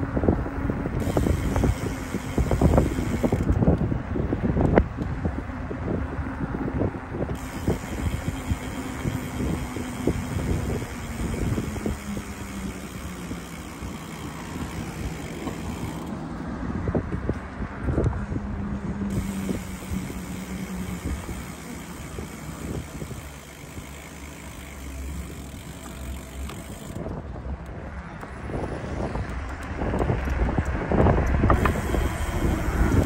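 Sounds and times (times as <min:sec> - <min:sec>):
tyres rumbling on road: 0:00.0 - 0:33.0
bicycle freewheel ticking: 0:00.8 - 0:03.8, 0:07.2 - 0:16.2, 0:19.1 - 0:27.2, 0:29.3 - 0:33.0.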